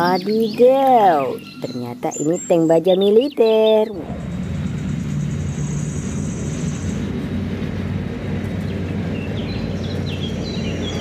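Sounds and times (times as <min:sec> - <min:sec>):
tank engine drone: 0:00.0 - 0:11.0
high whine: 0:03.9 - 0:09.7.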